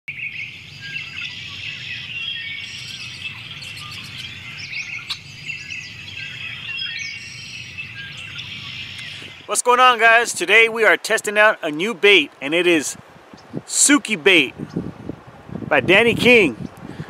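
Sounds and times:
small birds chirping: 0:00.1 - 0:09.7.

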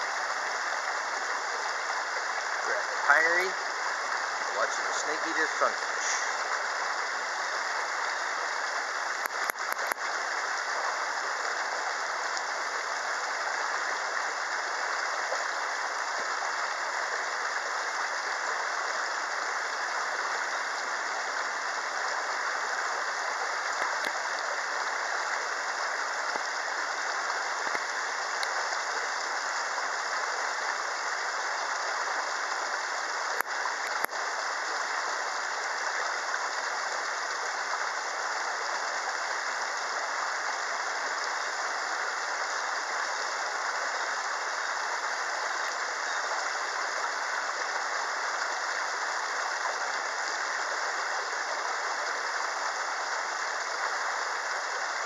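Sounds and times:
faint clicks: 0:09.2 - 0:10.1, 0:23.8 - 0:24.2, 0:27.6 - 0:28.6.

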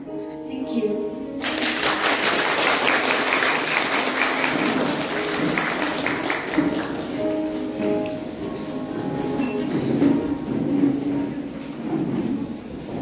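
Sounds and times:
background music with held notes: 0:00.0 - 0:13.0
audience applauding: 0:01.4 - 0:07.5.

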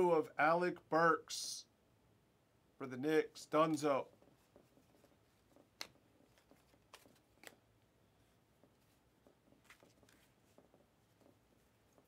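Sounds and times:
trading cards being flipped: 0:03.7 - 0:07.7, 0:08.7 - 0:12.0.

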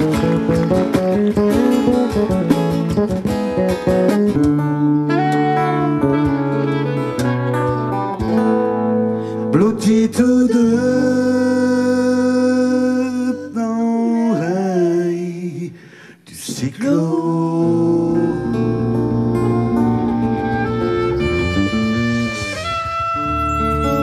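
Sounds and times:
electric bass playing: 0:00.0 - 0:09.5, 0:17.7 - 0:24.0.

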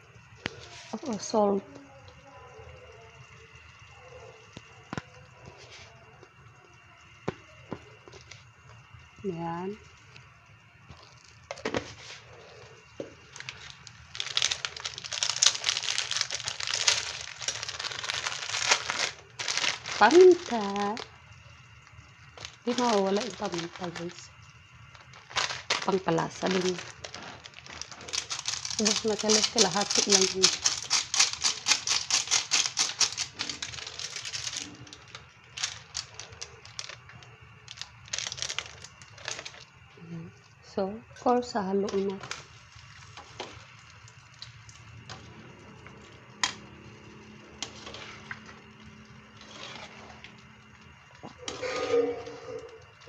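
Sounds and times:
plastic packet crinkling: 0:12.9 - 0:21.2, 0:21.8 - 0:39.7.

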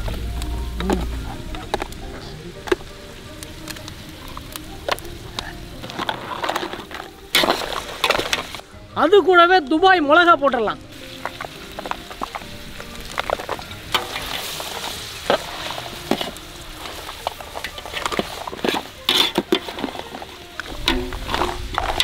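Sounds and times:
food sizzling in a pot: 0:00.0 - 0:22.0
metal spatula scraping pot: 0:04.9 - 0:08.6, 0:13.1 - 0:22.0.

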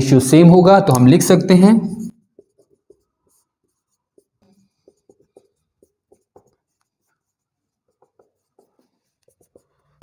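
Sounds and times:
marker pen writing on whiteboard: 0:00.4 - 0:10.0.

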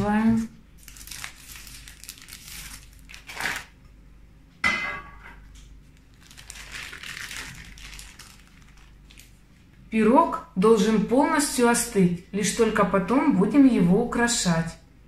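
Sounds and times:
baking parchment rustling: 0:00.0 - 0:03.8, 0:06.0 - 0:09.7.

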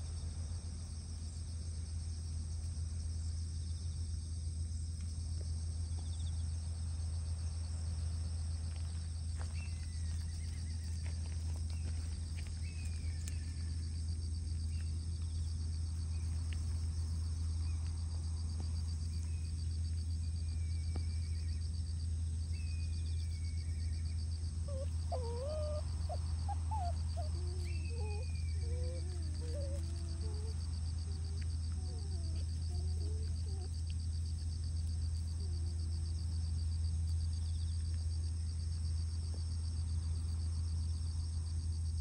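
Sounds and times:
insects buzzing: 0:00.0 - 0:42.0
steady low hum: 0:00.0 - 0:42.0
animal kits whining: 0:24.6 - 0:34.0.

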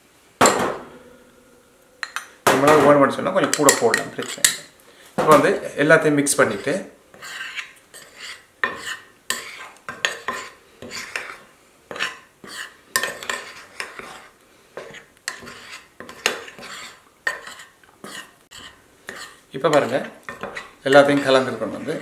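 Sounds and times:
fork scraping ceramic dish: 0:03.6 - 0:04.6, 0:06.5 - 0:21.5.

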